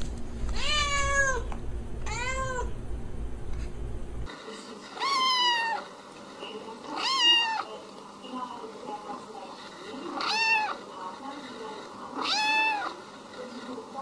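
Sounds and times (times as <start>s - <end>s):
cat meowing: 0.5s - 2.8s, 5.0s - 5.8s, 7.0s - 7.7s, 10.2s - 10.8s, 12.2s - 12.9s
kitten meowing: 0.6s - 2.7s.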